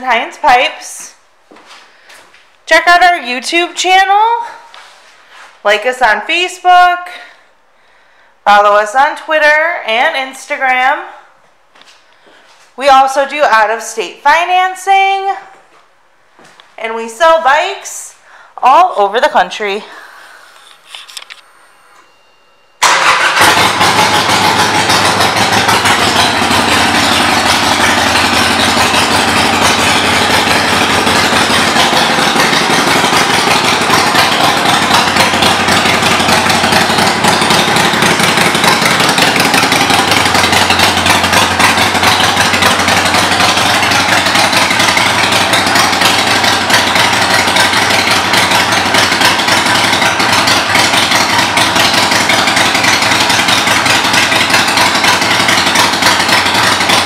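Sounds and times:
motorcycle engine idling: 19.8 - 57.0.

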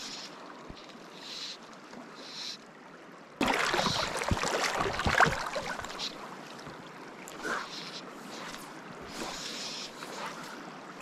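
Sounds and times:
river flowing: 0.0 - 11.0
water splashing: 3.4 - 7.4.

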